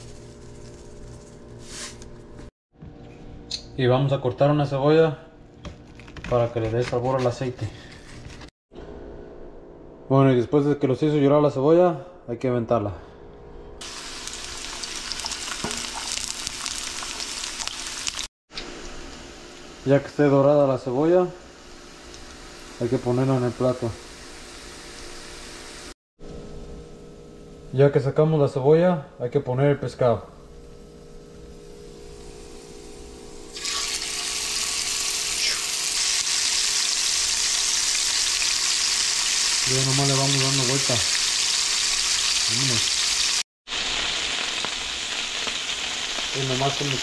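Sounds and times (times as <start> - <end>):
onion sizzling in hot oil: 13.8 - 19.9, 21.5 - 25.9, 33.5 - 47.0.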